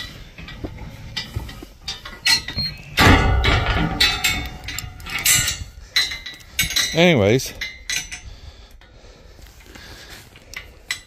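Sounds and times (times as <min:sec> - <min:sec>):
metal gate clanking and rattling: 0:00.0 - 0:08.3.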